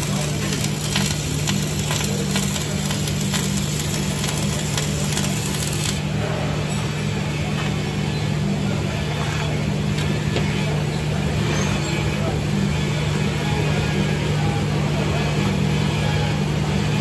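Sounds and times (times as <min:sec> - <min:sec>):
welding arc crackling: 0:00.0 - 0:06.1
welding machine hum: 0:00.0 - 0:06.2.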